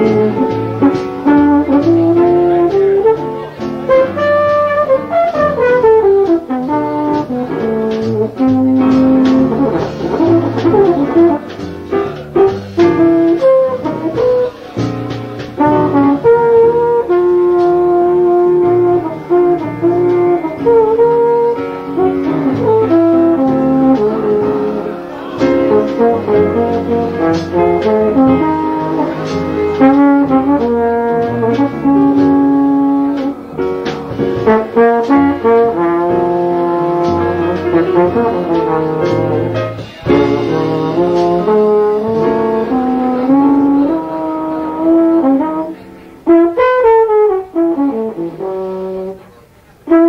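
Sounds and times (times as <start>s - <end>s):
jazz piano trio: 0.0s - 50.0s
slide trombone playing: 0.0s - 50.0s.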